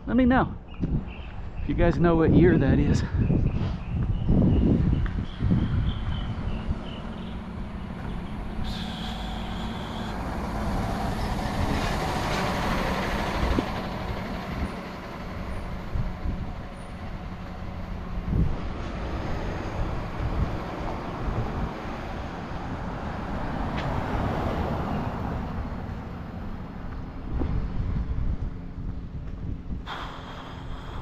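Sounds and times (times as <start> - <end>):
traffic: 0.0 - 31.0
wind on microphone: 0.5 - 31.0.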